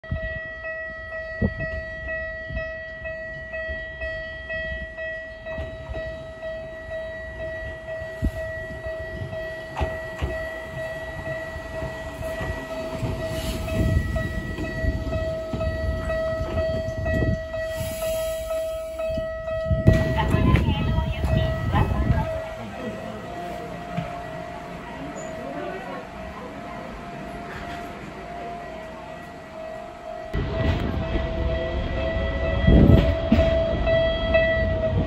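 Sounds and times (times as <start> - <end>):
electric train rumbling: 0.0 - 35.0
level-crossing alarm dinging: 0.1 - 35.0
train wheels knocking: 9.3 - 17.4.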